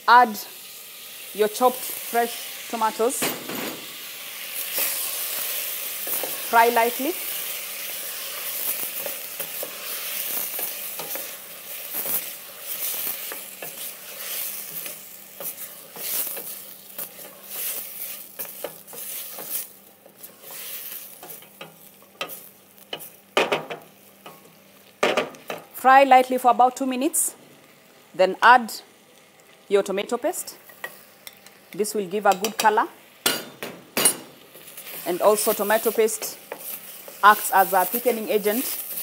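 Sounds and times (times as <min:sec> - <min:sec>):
vegetables sizzling in oil: 0:00.0 - 0:39.0
wooden spoon scraping a pan: 0:12.6 - 0:22.4.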